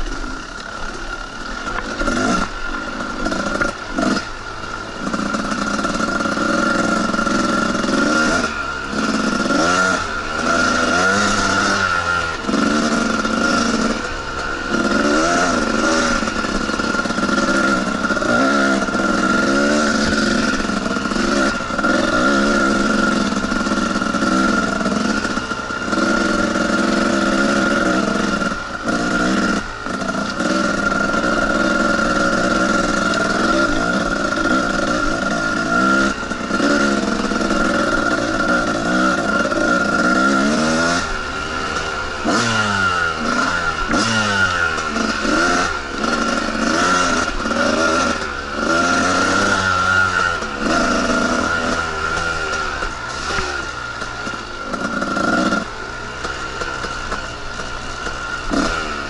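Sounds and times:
two-stroke dirt bike engine revving: 0.0s - 59.0s.

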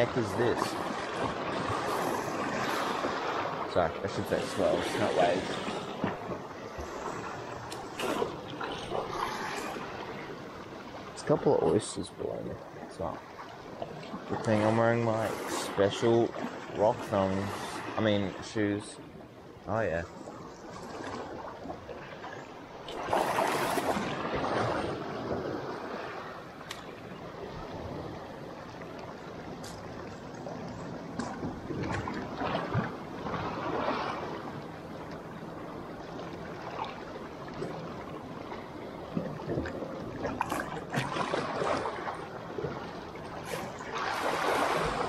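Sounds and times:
waves splashing over rocks: 0.0s - 18.8s, 22.8s - 34.6s, 36.0s - 45.0s.

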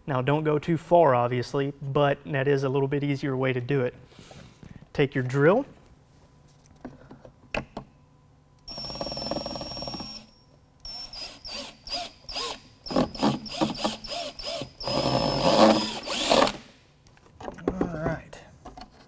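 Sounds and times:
power drill whining: 8.7s - 16.7s
drill clicks: 10.8s - 16.7s
drill bit cutting plastic: 10.9s - 16.6s.

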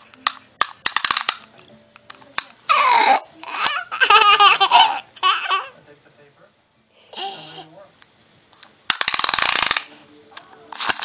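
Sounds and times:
toddler laughing: 2.7s - 5.7s.

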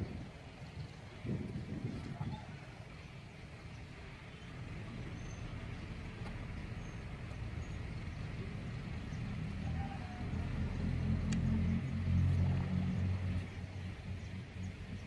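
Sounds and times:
low motor rumble: 0.0s - 15.0s.

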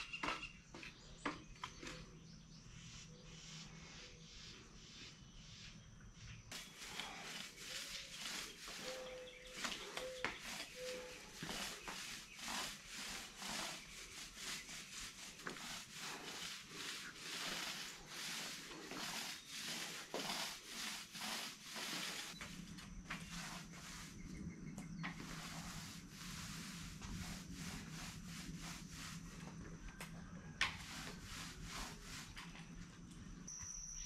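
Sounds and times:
paint roller swishing on floor: 6.5s - 32.8s.

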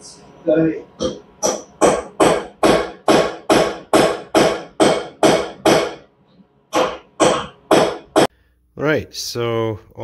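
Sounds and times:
hammer striking steel punch: 1.4s - 6.0s, 6.7s - 8.3s.

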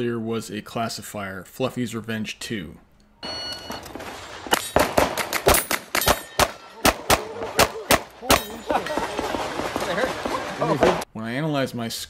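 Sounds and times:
steel targets ringing: 3.2s - 6.8s, 8.2s - 9.4s
rapid pistol fire: 4.0s - 8.4s, 9.0s - 10.6s
voices: 6.4s - 12.0s.

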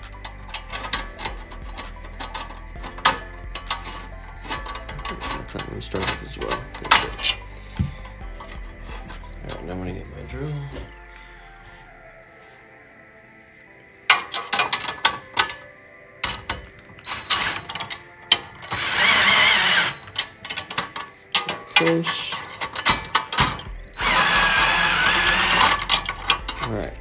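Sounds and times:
metallic clicks and rattles of wrench: 0.0s - 9.6s, 25.1s - 26.9s
cordless drill driving bolt: 16.4s - 21.6s, 22.8s - 26.6s.

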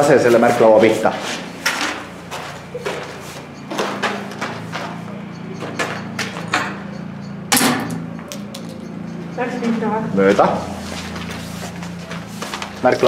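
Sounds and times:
footsteps crunching on concrete: 0.0s - 6.5s, 9.7s - 13.0s.

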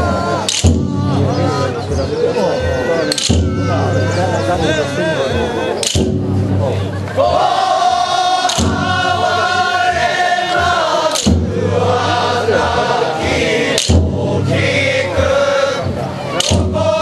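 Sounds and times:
sharp wooden clack: 0.4s - 0.8s, 5.8s - 6.2s, 8.5s - 8.8s, 11.1s - 11.4s
men's chorus singing in unison: 6.8s - 17.0s.

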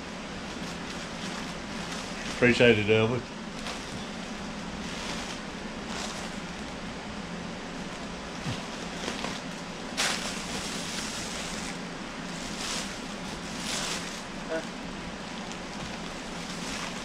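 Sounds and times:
steady low hum: 0.0s - 17.0s
plastic packing crinkling: 3.5s - 6.8s, 7.9s - 14.7s, 15.3s - 17.0s.

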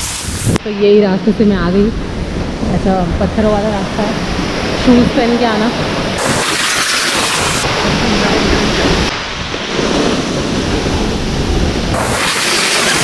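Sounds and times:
wind on microphone: 0.0s - 13.0s
waterfall rushing: 6.0s - 9.4s, 11.1s - 13.0s.

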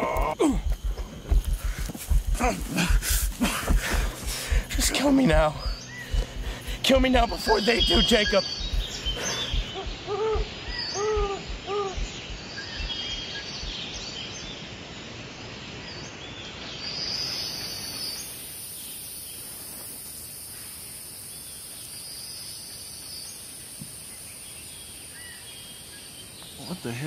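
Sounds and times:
low thumps: 0.0s - 13.8s
birds chirping: 0.0s - 14.7s, 20.7s - 27.0s
high insect hiss: 0.0s - 27.0s
bird arched calls: 3.3s - 13.4s.

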